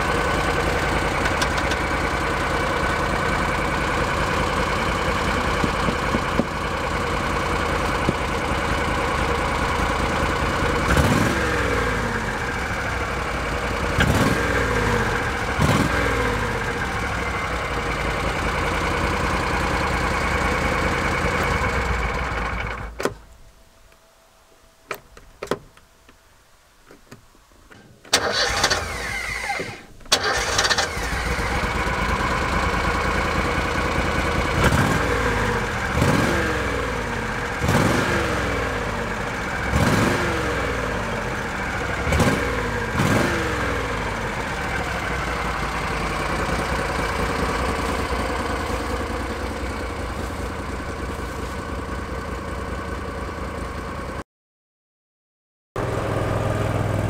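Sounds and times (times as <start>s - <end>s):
vehicle engine starting and idling: 0.0s - 23.5s, 28.0s - 54.2s, 55.8s - 57.0s
engine revving in quick blips: 10.8s - 12.1s, 13.9s - 16.5s, 34.6s - 37.0s, 37.6s - 38.9s, 39.6s - 41.1s, 42.1s - 44.3s.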